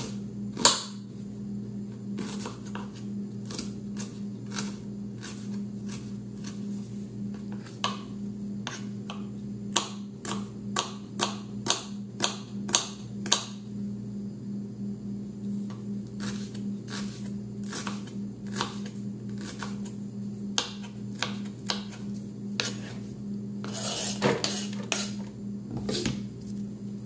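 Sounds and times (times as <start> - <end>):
knife chopping on plastic board: 0.0 - 1.0, 7.4 - 13.6, 16.3 - 19.8, 20.6 - 22.0, 22.6 - 22.9
steady low hum: 0.0 - 27.0.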